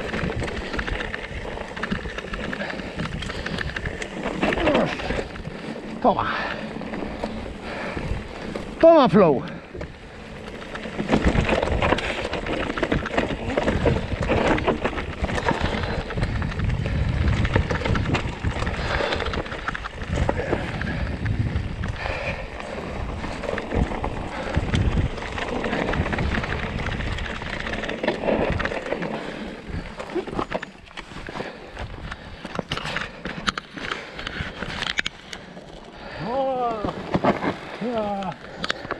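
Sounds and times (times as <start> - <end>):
bike clattering: 0.0 - 38.9
bike tyres on loose ground: 0.0 - 38.9
wind on microphone: 11.0 - 28.9.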